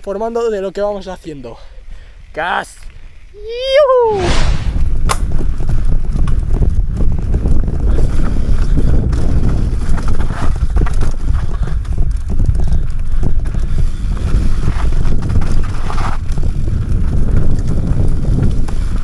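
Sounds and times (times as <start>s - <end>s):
wind buffeting microphone: 3.3s - 19.0s
bike tyres and frame rattling: 4.7s - 19.0s.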